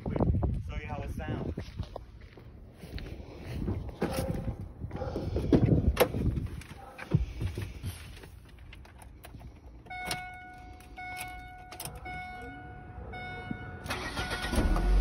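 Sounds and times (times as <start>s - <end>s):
keys at ignition: 8.5s - 15.0s
car door-open warning tone: 9.9s - 15.0s.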